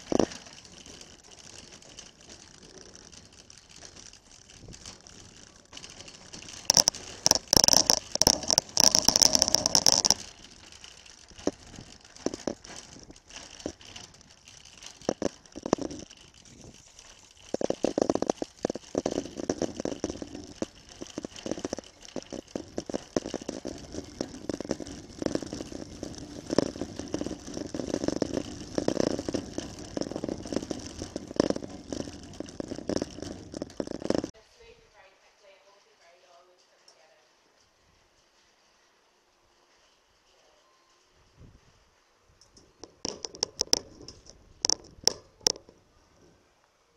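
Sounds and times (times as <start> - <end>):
wire basket rattling: 0.0 - 34.4
trolley wheels rolling on tarmac: 0.0 - 46.9.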